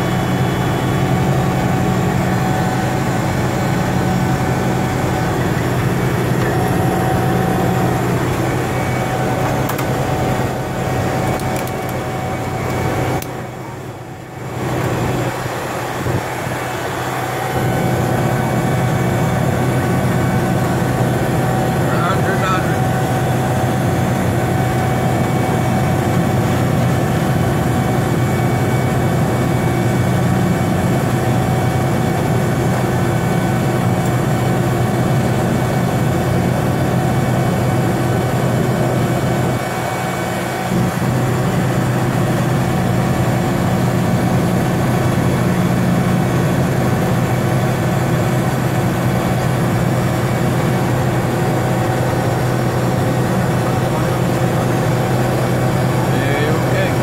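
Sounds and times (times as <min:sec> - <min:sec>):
high-pitched engine tones: 0:00.0 - 0:35.4
turboprop engine drone: 0:00.0 - 0:57.0.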